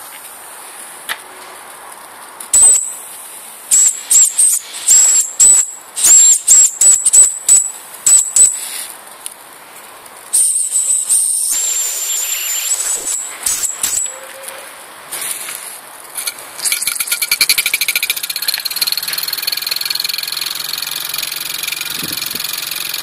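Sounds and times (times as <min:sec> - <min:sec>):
steam engine hissing: 0:03.7 - 0:06.6, 0:10.3 - 0:15.8.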